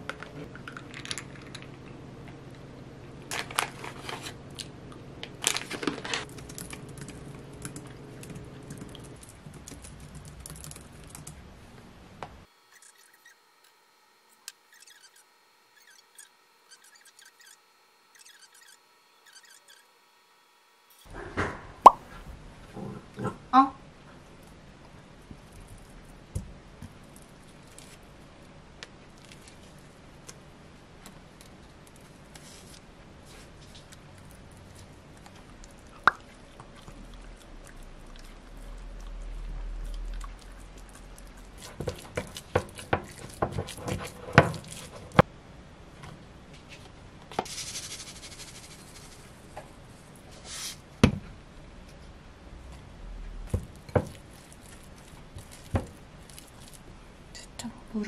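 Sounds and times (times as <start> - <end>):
spatula mashing food in bowl: 40.0 - 45.3, 53.5 - 56.8.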